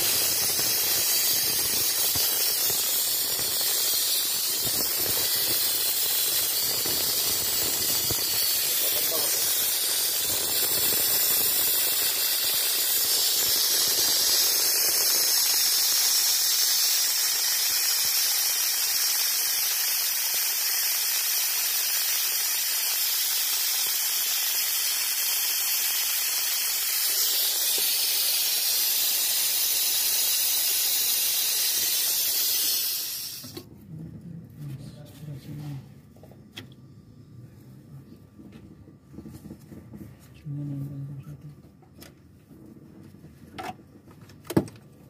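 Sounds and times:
vacuum extractor hissing: 0.0 - 33.7.

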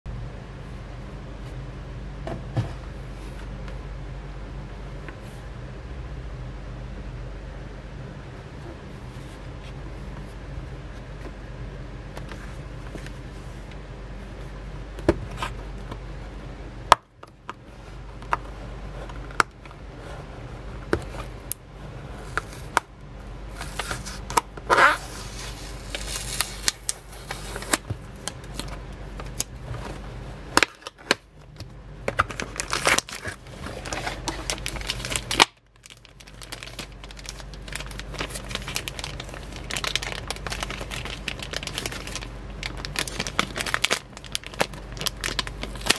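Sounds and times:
plastic bag crinkling: 23.5 - 30.0, 32.1 - 45.9.

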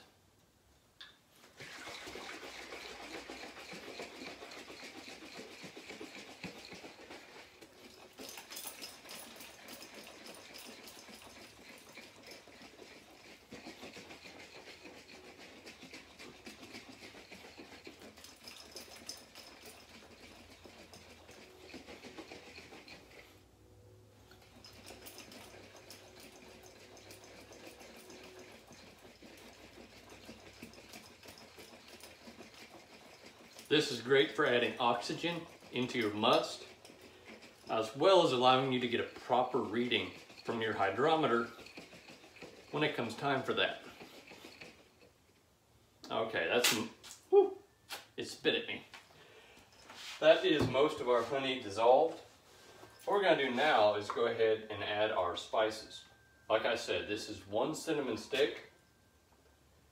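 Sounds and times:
liquid sloshing in glass jug: 1.4 - 23.4, 24.3 - 45.2.

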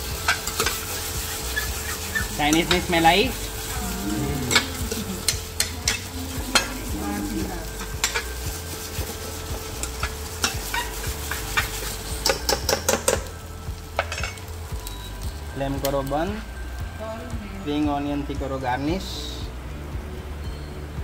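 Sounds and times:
food sizzling: 0.0 - 21.0
metal spoon clinking on a pan: 4.5 - 6.8, 7.8 - 8.4, 9.8 - 13.3, 14.0 - 15.0.

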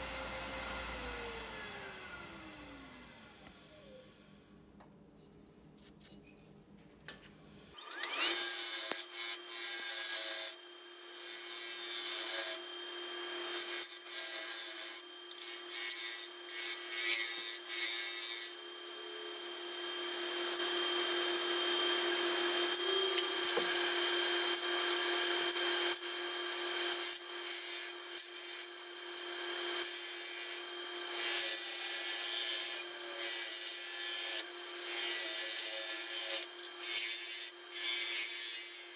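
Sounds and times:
lathe humming: 7.7 - 38.1.

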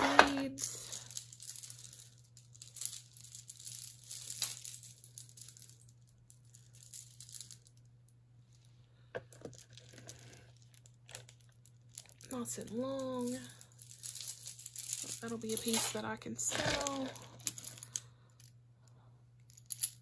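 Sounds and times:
wooden beads rattling and clicking: 9.3 - 18.0.

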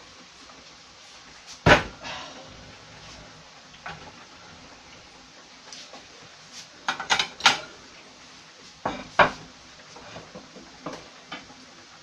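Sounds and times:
kitchenware clattering on wood: 6.9 - 7.7.

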